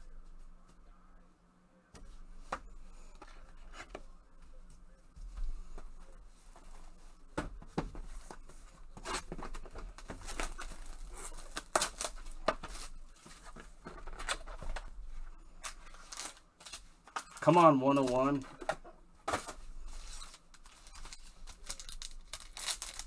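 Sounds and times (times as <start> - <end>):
plastic wrap tearing and crinkling: 10.0 - 13.0, 15.6 - 16.8, 20.1 - 23.0.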